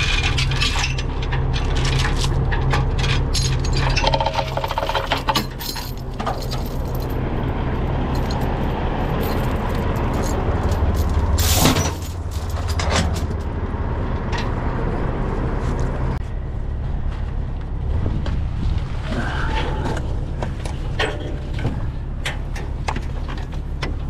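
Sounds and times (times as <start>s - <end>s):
diesel engine idling: 0.0s - 18.7s
metal clinks: 3.0s - 7.2s, 8.1s - 13.5s
loud metal clank: 11.0s - 13.4s.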